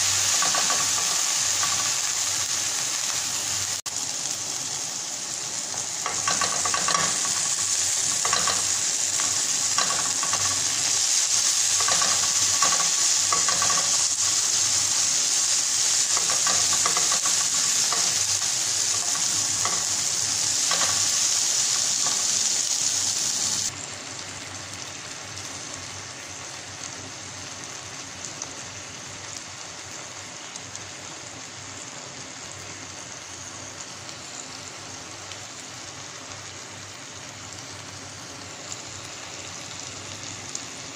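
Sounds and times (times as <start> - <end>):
vegetables sizzling in a pan: 0.0 - 40.9.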